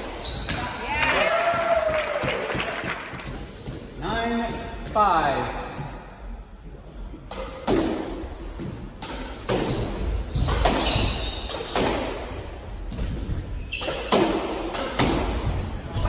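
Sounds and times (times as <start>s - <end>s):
shoes squeaking on hardwood floor: 0.0s - 0.9s, 3.1s - 5.0s, 8.4s - 11.8s, 13.0s - 16.0s
squash ball hits: 7.3s - 16.0s.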